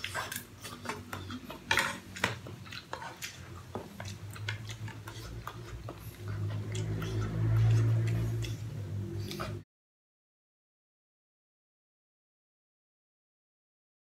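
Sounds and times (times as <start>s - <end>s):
slurping noodles: 0.0s - 9.6s
utensils scraping a pot: 0.0s - 9.6s.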